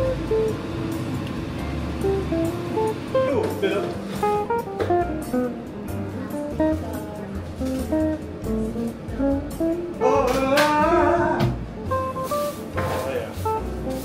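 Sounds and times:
steady bass beat: 0:00.0 - 0:03.5, 0:10.8 - 0:12.7, 0:13.4 - 0:14.0
picked acoustic guitar tune: 0:00.0 - 0:14.0.

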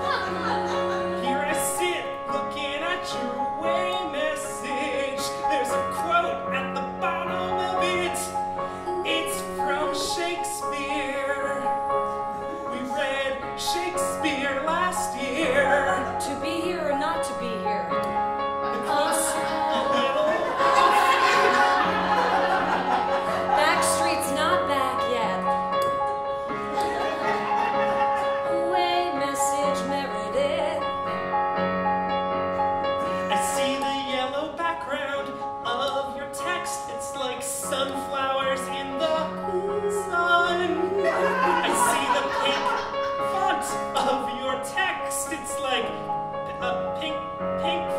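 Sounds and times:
electric keyboard chords: 0:00.0 - 0:34.4
man singing with vibrato: 0:00.3 - 0:17.6, 0:18.8 - 0:21.5, 0:28.4 - 0:30.9, 0:33.0 - 0:45.9.

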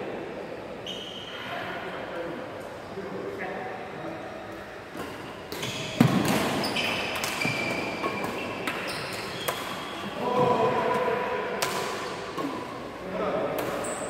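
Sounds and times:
racket smacking shuttlecock: 0:05.0 - 0:09.9
shoes squeaking on wooden floor: 0:06.6 - 0:10.6.

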